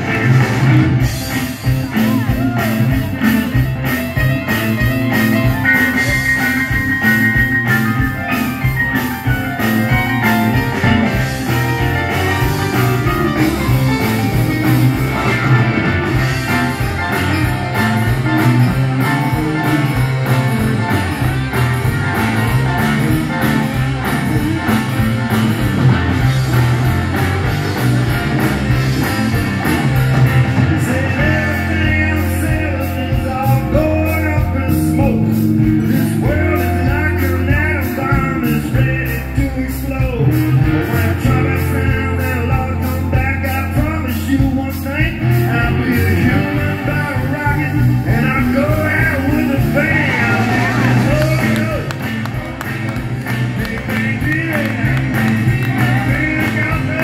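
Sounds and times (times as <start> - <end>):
blues-rock band playing: 0.0 - 57.0
man singing: 30.6 - 57.0.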